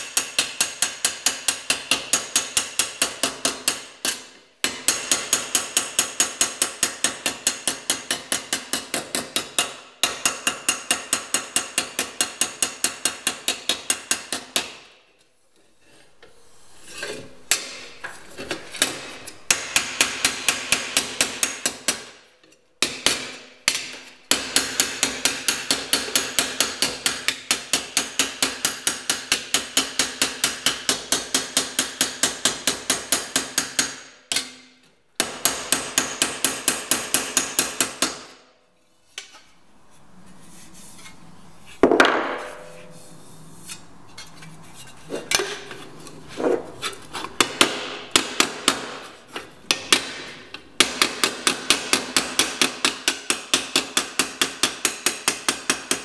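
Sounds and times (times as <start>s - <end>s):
hammer striking metal panel: 47.4s - 49.0s, 49.7s - 56.0s.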